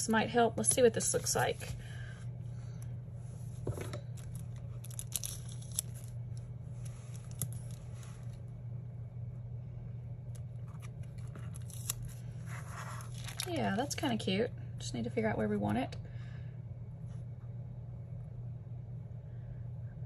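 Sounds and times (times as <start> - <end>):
steady low hum: 0.0 - 20.0
sticker peeling crackles and clicks: 4.2 - 6.4, 7.2 - 7.8, 10.3 - 12.1.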